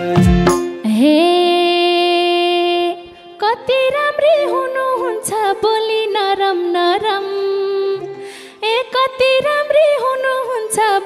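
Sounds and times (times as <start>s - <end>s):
harmonium: 0.0s - 11.0s
melody line with vibrato: 4.2s - 6.8s.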